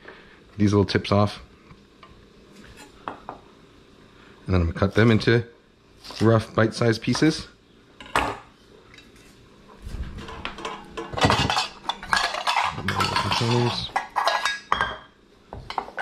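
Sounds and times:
pot picked up and moved: 0:10.0 - 0:15.0
pots and utensils clinking: 0:10.2 - 0:16.0.

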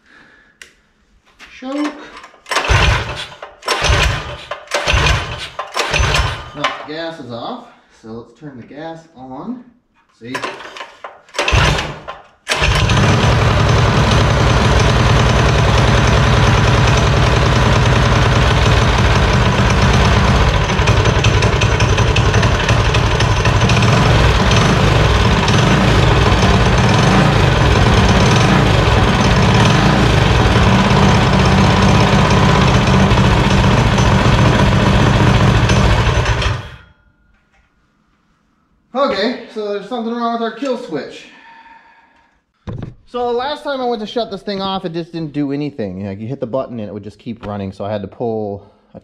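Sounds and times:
minibike engine running: 0:02.6 - 0:04.2, 0:11.4 - 0:36.8.

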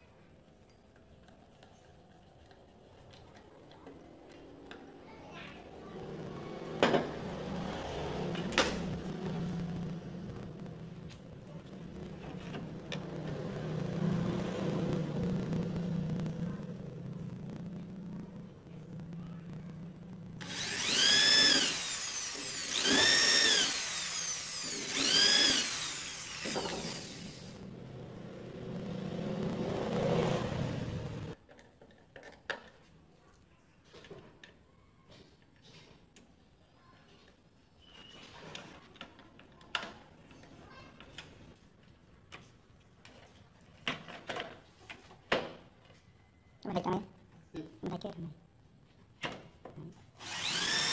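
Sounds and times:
electric drill boring into wood: 0:20.4 - 0:27.6, 0:50.2 - 0:50.9
screwdriver driving screws: 0:20.4 - 0:27.6, 0:50.2 - 0:50.9.

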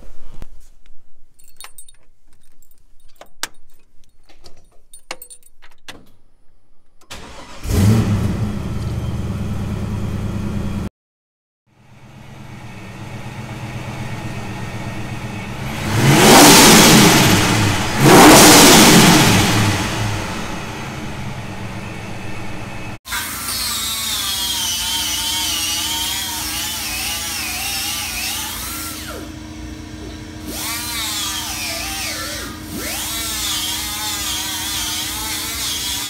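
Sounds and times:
car engine revving: 0:07.1 - 0:10.9, 0:12.5 - 0:23.0
car engine running: 0:07.1 - 0:10.9, 0:11.8 - 0:23.0
car engine idling: 0:11.8 - 0:23.0.

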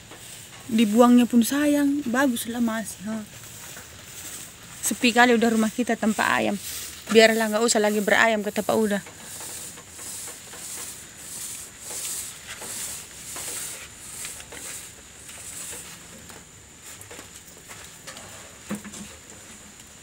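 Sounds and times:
paint roller rasping on wall: 0:00.0 - 0:17.2.

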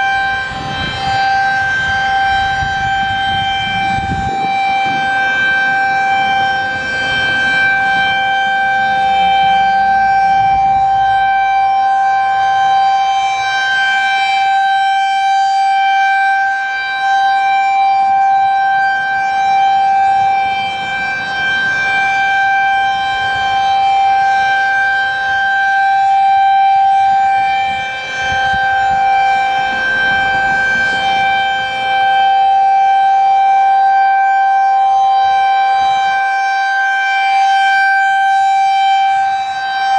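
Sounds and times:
rotating warning siren: 0:00.0 - 0:39.9.

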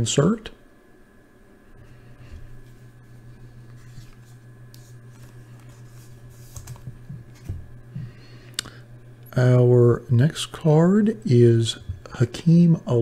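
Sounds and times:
steady low hum: 0:00.0 - 0:13.0
cards clicking and rustling: 0:03.8 - 0:07.6.

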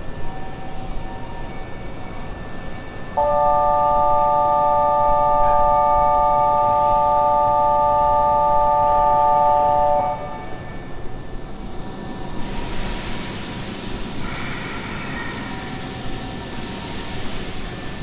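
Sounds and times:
electronic chord signal: 0:03.2 - 0:10.6.

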